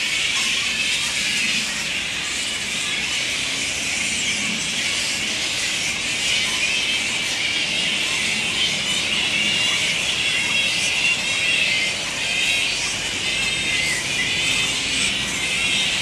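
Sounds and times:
flying foxes squealing: 0.0s - 16.0s.

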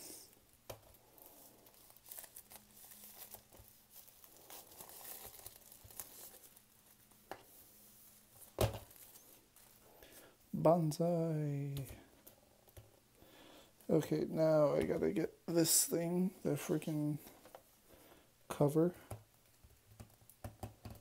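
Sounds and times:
plastic sleeve crinkling: 0.7s - 10.4s.

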